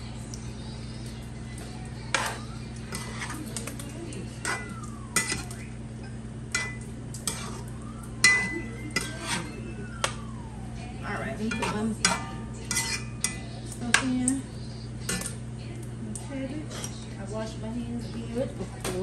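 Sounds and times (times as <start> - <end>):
low hum: 0.0 - 18.8
metal utensil scraping a pot: 2.1 - 5.6, 6.5 - 9.6, 11.4 - 14.1, 15.0 - 15.4, 16.7 - 17.1.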